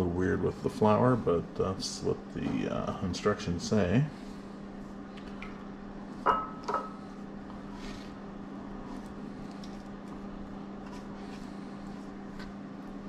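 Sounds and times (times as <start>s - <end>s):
steady low hum: 0.0s - 13.0s
kitchenware clinking: 6.2s - 7.0s.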